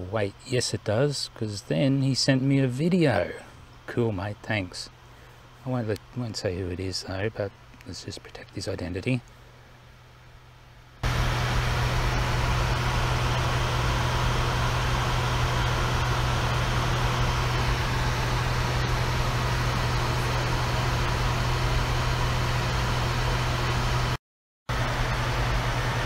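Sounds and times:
steady low hum: 0.0 - 26.0
rush of air in cockpit: 11.0 - 26.0.

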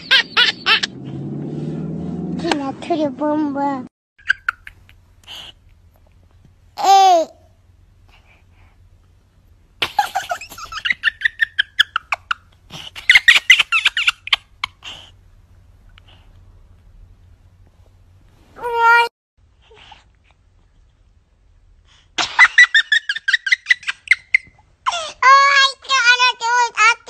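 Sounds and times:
baby laughing and squealing: 0.0 - 0.9, 9.9 - 15.1.

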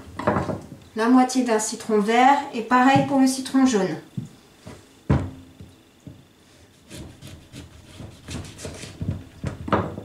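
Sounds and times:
knife sawing through lemon: 6.7 - 9.0.

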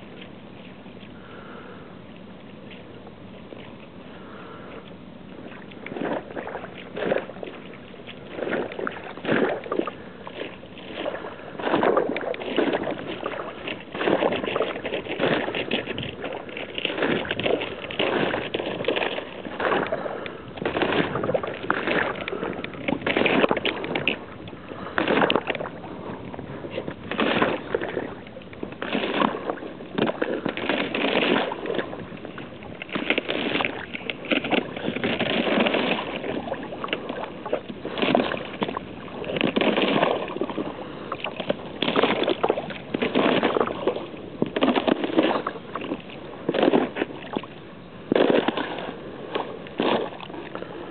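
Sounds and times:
footsteps crunching through slush: 5.9 - 24.2, 41.5 - 47.5.

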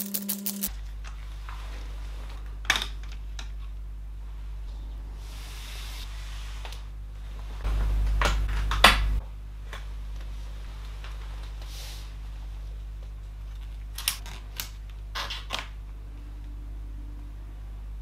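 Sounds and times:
small parts clicking: 0.0 - 0.7.

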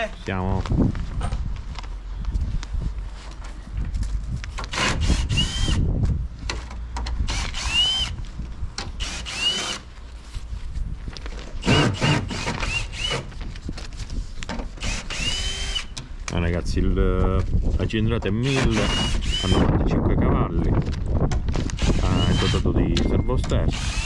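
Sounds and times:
cordless drill spinning: 4.7 - 5.9, 7.3 - 8.2, 9.0 - 9.9, 11.6 - 13.3, 14.8 - 16.0, 18.4 - 19.7, 21.6 - 22.7, 23.7 - 24.0.

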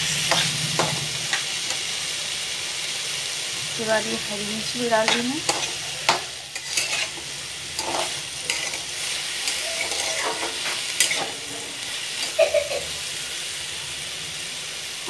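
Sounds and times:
metal spatula scraping a pan: 0.0 - 1.9, 5.0 - 12.5
vegetables sizzling in oil: 0.0 - 15.0.

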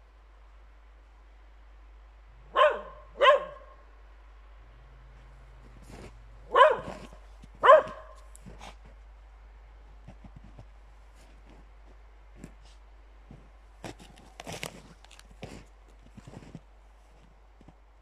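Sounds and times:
dog barking: 2.4 - 3.9, 6.5 - 8.3.

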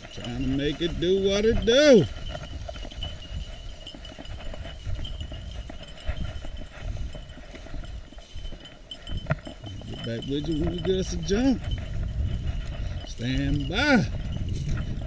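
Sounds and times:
footsteps in dry grass: 0.0 - 15.0.

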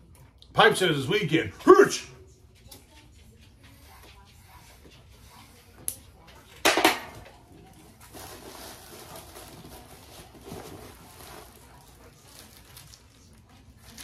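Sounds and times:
faint rustling and handling: 7.6 - 14.0.

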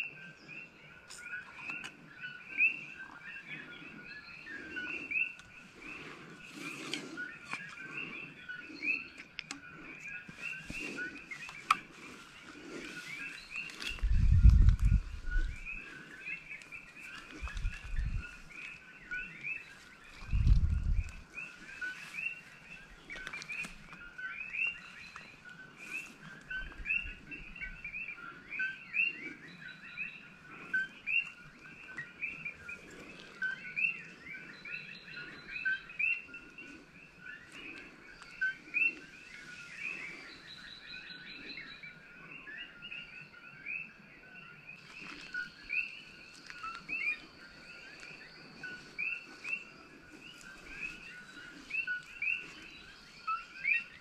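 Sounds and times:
chorus of frogs calling: 0.0 - 54.0.

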